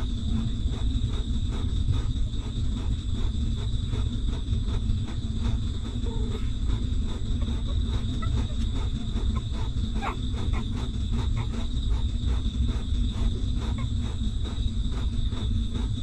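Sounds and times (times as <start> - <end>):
puppies suckling: 0.0 - 16.0
puppy squeak: 7.4 - 11.7.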